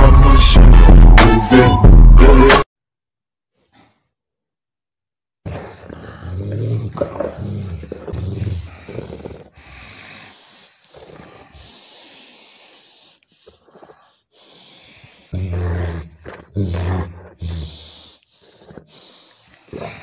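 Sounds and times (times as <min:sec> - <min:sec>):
dog growling in play: 0:05.4 - 0:14.3, 0:15.3 - 0:20.0.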